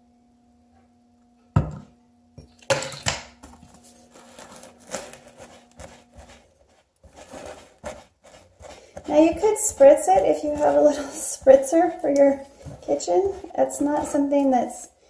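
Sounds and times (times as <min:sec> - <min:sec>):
spatula scraping a ceramic bowl: 0:04.3 - 0:14.9.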